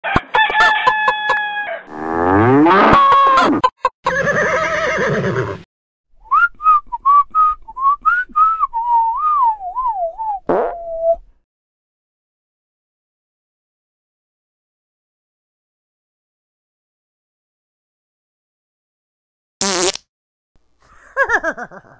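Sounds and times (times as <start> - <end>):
cow mooing: 1.9 - 2.9
whistled tune: 6.2 - 11.2.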